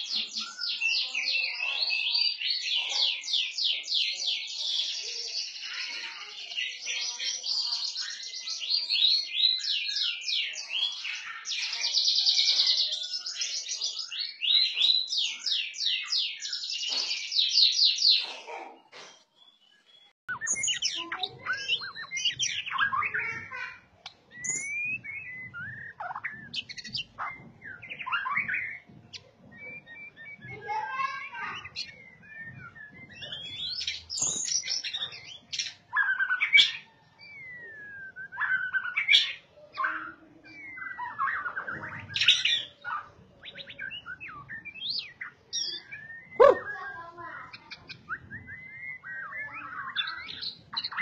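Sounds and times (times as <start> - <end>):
bird whistles and chirps: 0.0 - 51.0
bird singing high trills: 19.4 - 51.0.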